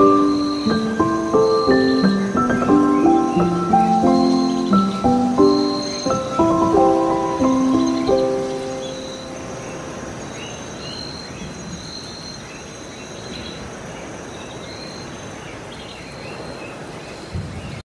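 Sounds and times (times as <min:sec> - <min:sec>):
background music: 0:00.0 - 0:10.0
faint high chirps: 0:00.0 - 0:12.2.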